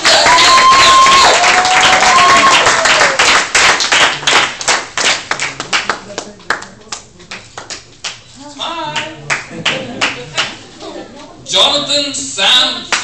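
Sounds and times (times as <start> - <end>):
high-pitched cheers: 0.0 - 3.3
crowd applauding: 0.0 - 6.7, 9.3 - 10.6.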